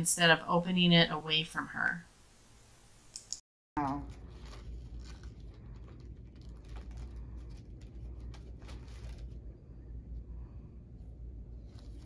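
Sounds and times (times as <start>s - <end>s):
paper wrapper crackling: 3.8s - 9.7s
low hum: 3.8s - 12.0s.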